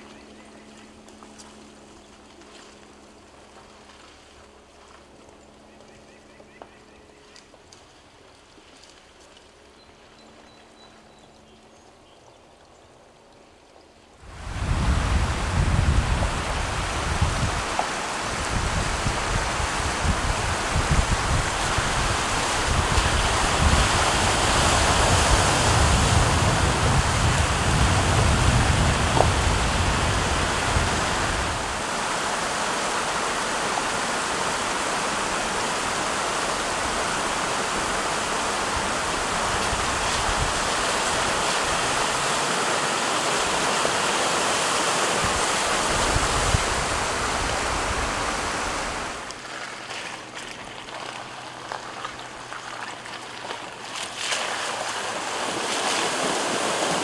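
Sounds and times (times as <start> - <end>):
wind rumble on microphone: 14.2 - 49.4
creek water rushing: 14.2 - 57.0.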